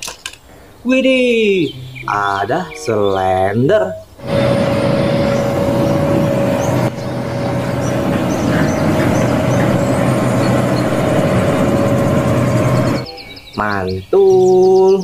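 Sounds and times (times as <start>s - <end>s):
birds chirping faintly: 0.0s - 15.0s
road roller diesel engine whining: 4.2s - 13.5s.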